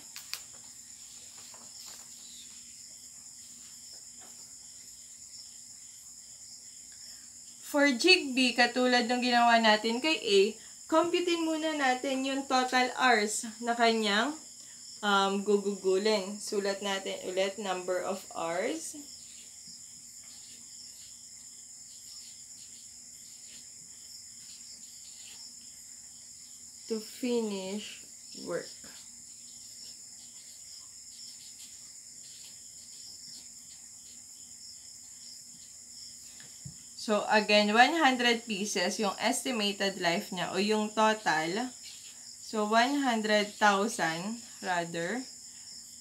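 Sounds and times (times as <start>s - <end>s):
paper rustling: 0.0s - 2.7s
high-pitched background hiss: 0.0s - 46.0s.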